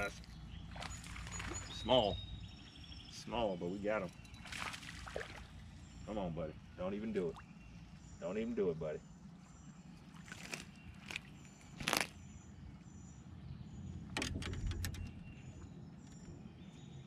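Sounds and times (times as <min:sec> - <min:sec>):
knocks and clatters in a boat: 0:14.1 - 0:16.4.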